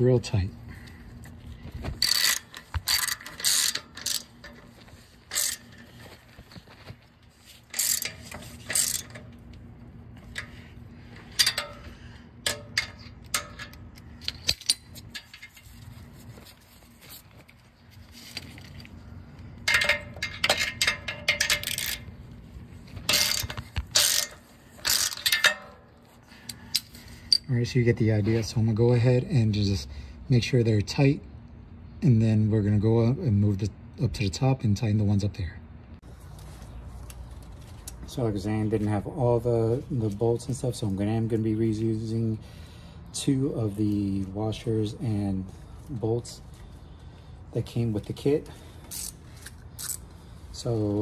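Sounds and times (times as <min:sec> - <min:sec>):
hand ratchet clicking: 0:02.0 - 0:04.6, 0:05.3 - 0:05.8, 0:07.7 - 0:09.3, 0:23.1 - 0:25.7.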